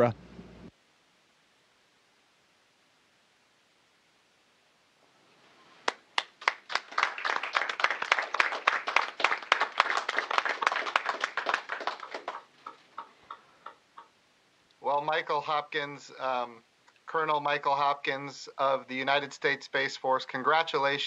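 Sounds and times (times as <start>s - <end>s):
people clapping: 5.8s - 14.1s.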